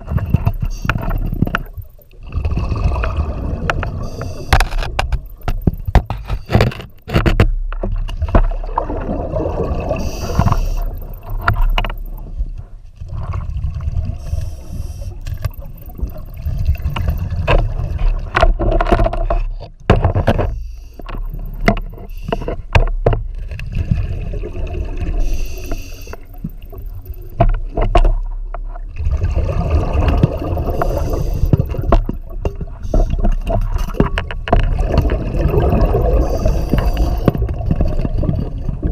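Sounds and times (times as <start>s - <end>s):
exhaust bubbles gurgling: 0.0s - 6.2s, 8.2s - 18.6s, 23.3s - 27.4s, 28.9s - 38.9s
scuba diver breathing underwater: 2.4s - 4.9s, 9.4s - 11.5s, 14.1s - 16.7s, 25.1s - 26.7s, 29.7s - 31.9s, 32.7s - 33.3s, 35.1s - 37.6s
gear scraping against rock: 3.7s - 7.6s.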